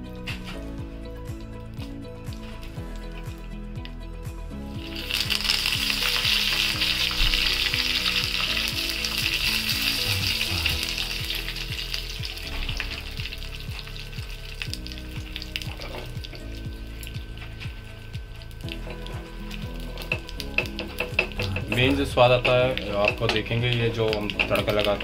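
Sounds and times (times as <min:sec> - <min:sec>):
leaves and seeds sizzling in oil: 0:04.7 - 0:25.0.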